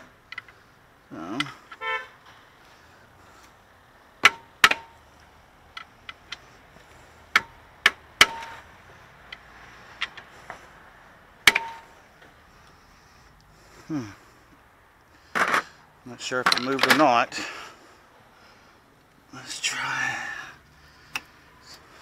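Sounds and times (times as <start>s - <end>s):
pry bar clanking on metal: 11.5s - 11.9s.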